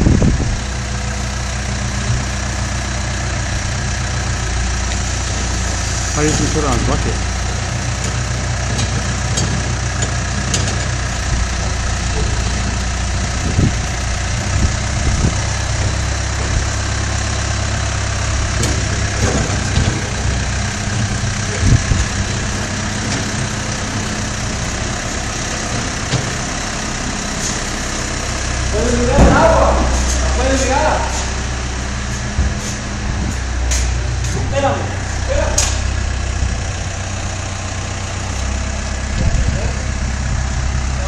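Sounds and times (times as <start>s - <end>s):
diesel engine running at low revs: 0.0s - 41.0s
short metal knocks: 8.0s - 11.1s.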